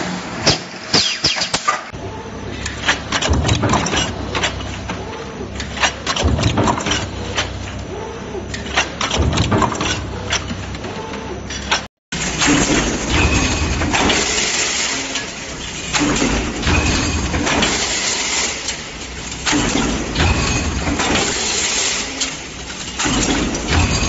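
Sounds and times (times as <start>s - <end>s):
sharp metal knocks: 0.4s - 1.9s
stamping press running: 0.4s - 24.0s.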